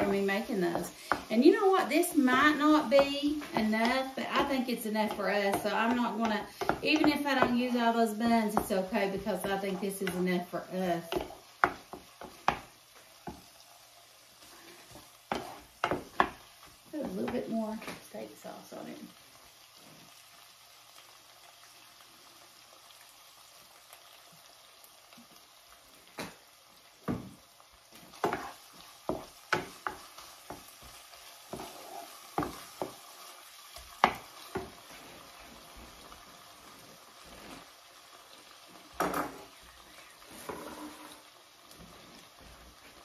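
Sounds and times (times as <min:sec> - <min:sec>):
wooden spatula scraping a pan: 0:00.0 - 0:13.5, 0:14.4 - 0:18.1, 0:27.9 - 0:33.1, 0:33.8 - 0:38.0, 0:38.8 - 0:43.0
food sizzling in a skillet: 0:00.0 - 0:43.0.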